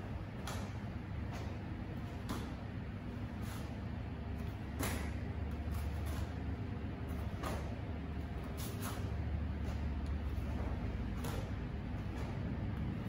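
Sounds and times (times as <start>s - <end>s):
steady low hum: 0.0s - 13.0s
uniform snapping and swishing: 4.5s - 6.4s, 7.1s - 7.8s, 8.4s - 12.4s.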